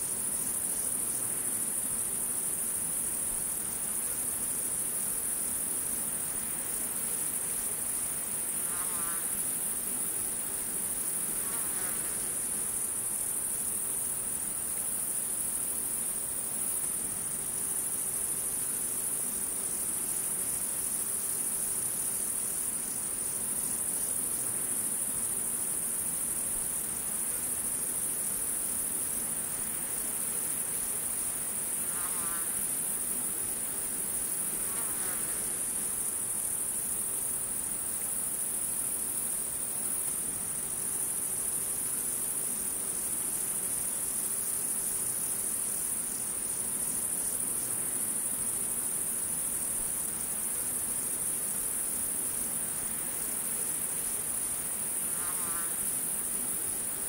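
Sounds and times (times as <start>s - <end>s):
crickets and insects trilling: 0.0s - 57.0s.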